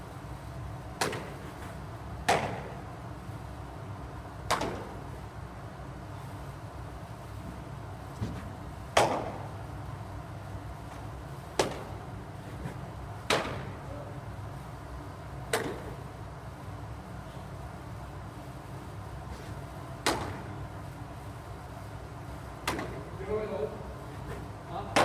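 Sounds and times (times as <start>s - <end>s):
baseballs landing with sharp pops: 0.9s - 2.8s, 4.4s - 5.1s, 7.5s - 9.5s, 10.9s - 13.8s, 15.4s - 16.0s, 20.0s - 20.5s, 22.6s - 23.1s.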